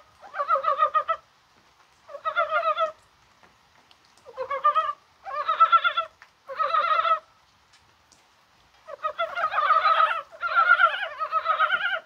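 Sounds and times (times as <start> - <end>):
frogs croaking in chorus: 0.0 - 1.2, 4.3 - 7.2, 8.9 - 12.0.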